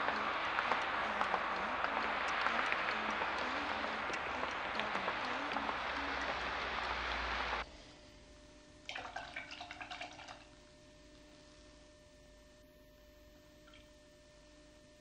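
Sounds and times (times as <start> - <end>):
faint low notes: 0.0 - 7.6
dense crackling hiss: 0.0 - 8.0.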